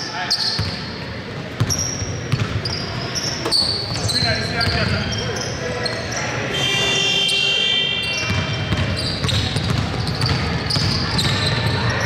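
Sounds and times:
basketball bouncing on wooden floor: 8.3s - 11.9s.

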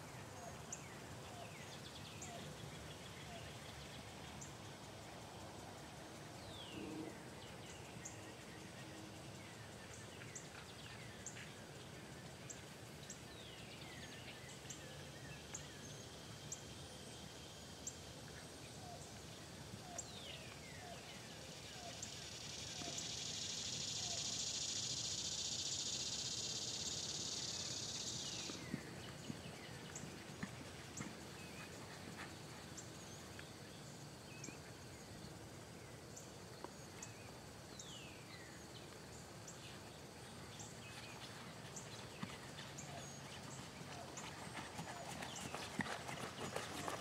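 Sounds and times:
hoofbeats on sand: 28.4s - 33.3s, 40.7s - 47.0s.

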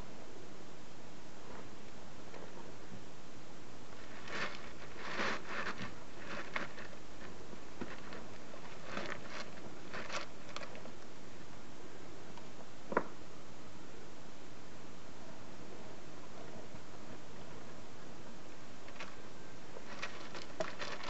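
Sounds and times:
faint rustles and crackles: 1.4s - 3.1s, 3.9s - 11.6s, 16.2s - 21.0s.

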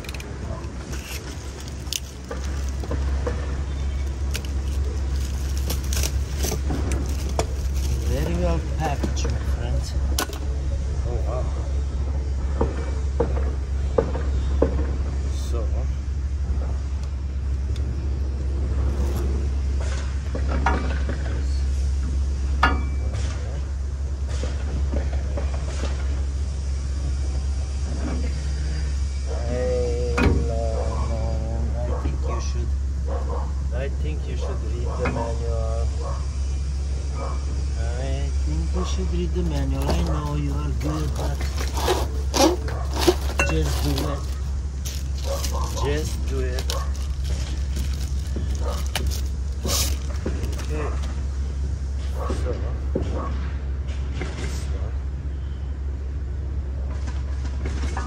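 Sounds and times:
metal parts clicking and knocking: 0.0s - 3.3s
packaging rustling: 0.0s - 9.5s, 39.1s - 51.2s
steady low rumble: 0.0s - 57.8s.

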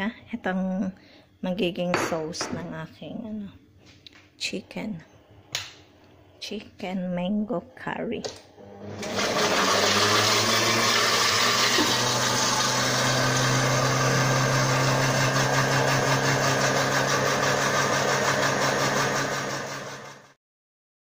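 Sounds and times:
blender motor running: 8.6s - 20.4s.

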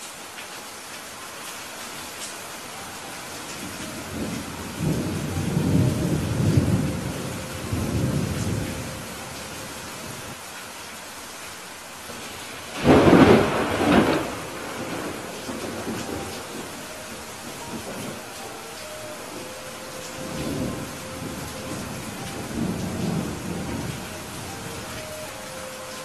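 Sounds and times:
steady rain: 0.0s - 26.0s
thunder rumbling: 3.5s - 10.4s, 12.1s - 25.8s
sharp thunderclap: 12.8s - 16.5s.

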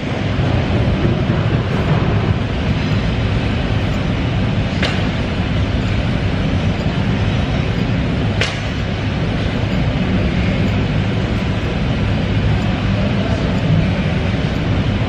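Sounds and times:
loud rumbling noise: 0.0s - 15.0s
sharp click: 4.8s - 5.2s, 7.8s - 8.9s.

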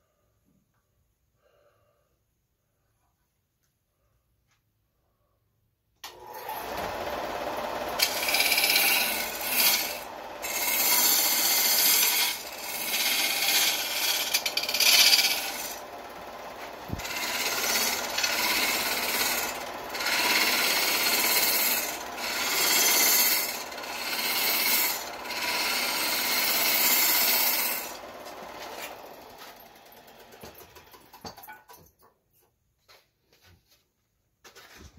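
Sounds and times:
lathe running quietly: 6.0s - 31.3s
gouge cutting spinning wood: 6.1s - 31.2s.

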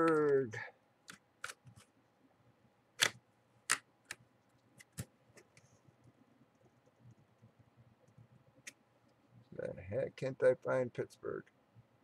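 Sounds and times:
keyboard and mouse clicks: 3.0s - 4.2s.

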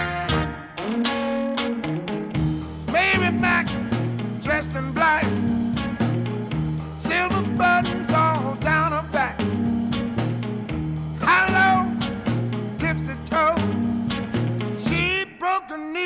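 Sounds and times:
steady bass line: 0.0s - 0.7s, 2.2s - 15.2s
guitar: 0.0s - 16.0s
person singing: 2.9s - 5.5s, 7.0s - 9.6s, 11.2s - 12.1s, 12.8s - 13.8s, 14.8s - 16.0s.

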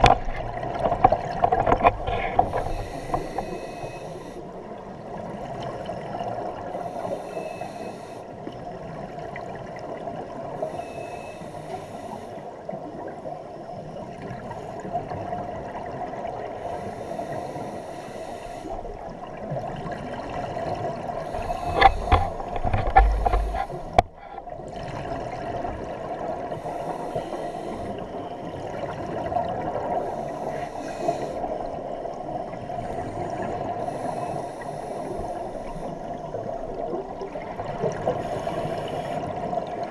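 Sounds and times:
underwater exhaled bubbles: 0.0s - 6.9s, 18.6s - 39.9s
steady hum: 21.2s - 24.5s.

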